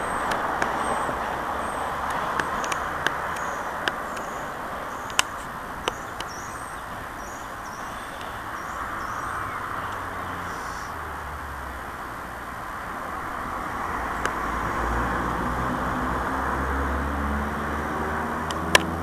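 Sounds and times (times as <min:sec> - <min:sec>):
small birds chirping: 0:00.0 - 0:11.1
sharp clicks: 0:00.2 - 0:00.8, 0:02.0 - 0:06.4, 0:18.5 - 0:19.0.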